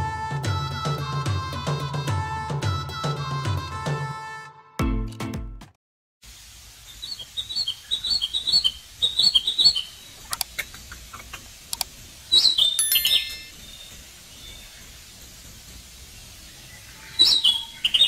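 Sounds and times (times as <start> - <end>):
music: 0.0 - 5.8
small birds chirping: 6.8 - 18.0
faint clicks: 10.2 - 11.9.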